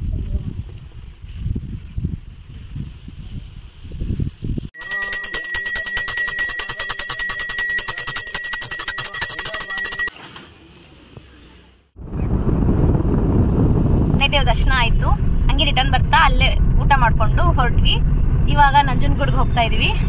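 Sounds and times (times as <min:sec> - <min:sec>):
hand bell rung rapidly: 0:04.8 - 0:10.1.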